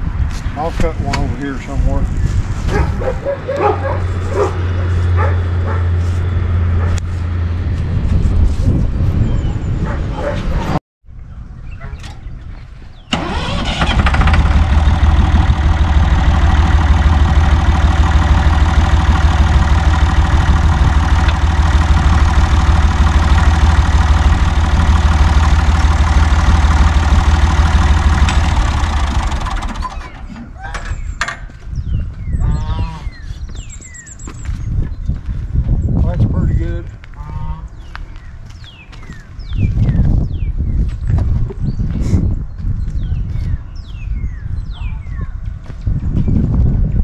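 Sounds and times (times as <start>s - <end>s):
tractor engine running: 13.0s - 31.2s.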